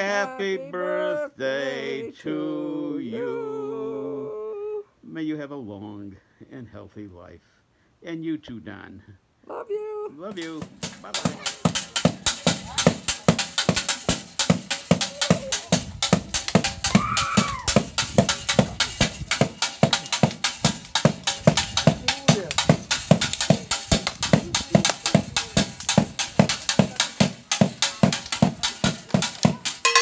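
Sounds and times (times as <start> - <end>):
fast drumming: 10.3 - 30.0
high call: 29.8 - 30.0.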